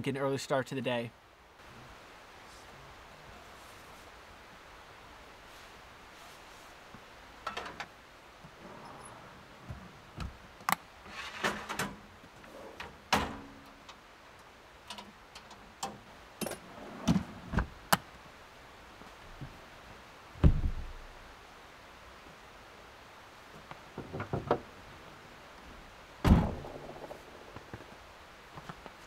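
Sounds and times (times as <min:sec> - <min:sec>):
heavy thump: 0:20.4 - 0:20.9, 0:26.2 - 0:27.1.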